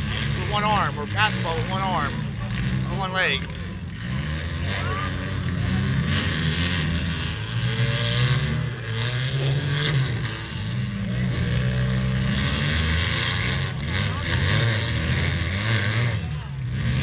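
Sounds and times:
car engines revving: 0:00.0 - 0:17.0.

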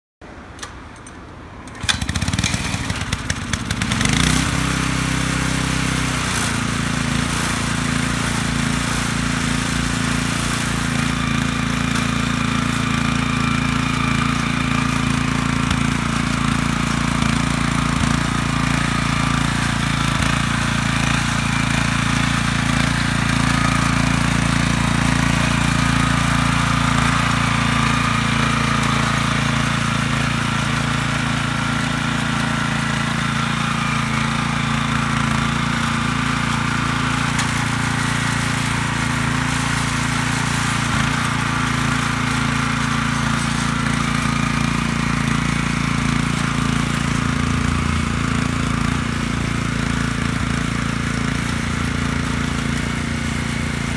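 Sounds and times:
small engine running: 0:01.7 - 0:53.9.

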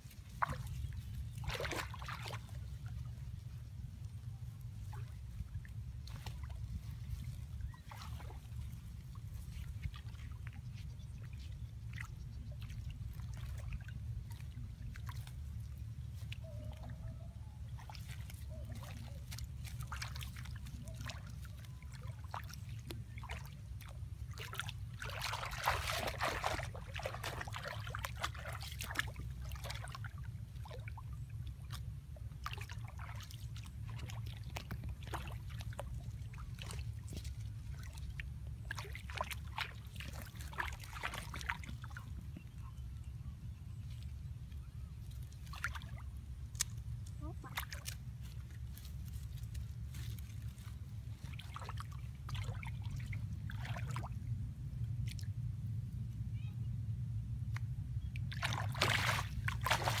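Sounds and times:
muddy water sloshing and splashing: 0:00.0 - 0:56.5, 0:57.1 - 1:00.0
low rumble: 0:41.5 - 1:00.0.

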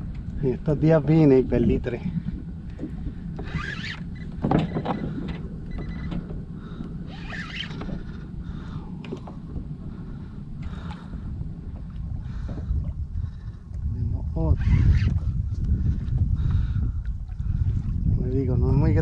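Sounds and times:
steady low rumble: 0:00.0 - 0:19.0
fishing reel gears whirring: 0:03.4 - 0:08.4, 0:14.5 - 0:15.2.

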